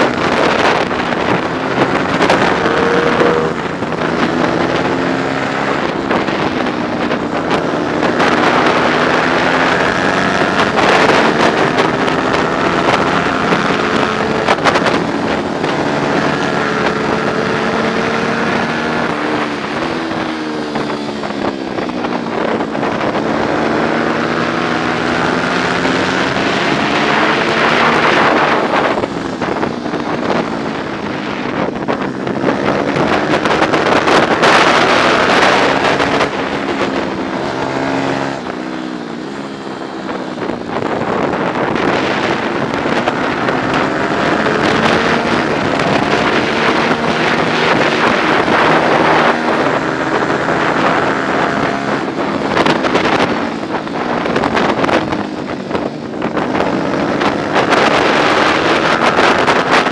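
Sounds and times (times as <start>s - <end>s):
motorcycle engine revving: 0.0s - 59.9s
wind noise on microphone: 0.0s - 59.9s.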